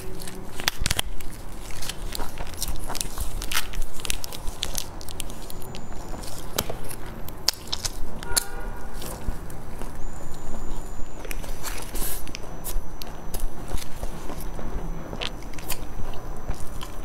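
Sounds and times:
hands tearing flaky crust: 0.0 - 9.9
biting crisp flatbread: 0.0 - 17.0
wet chewing: 0.0 - 17.0.

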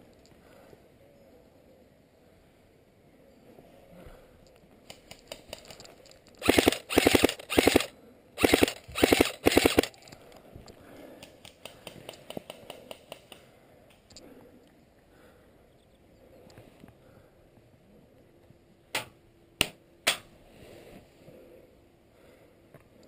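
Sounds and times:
airsoft gun bursts: 6.4 - 10.0.

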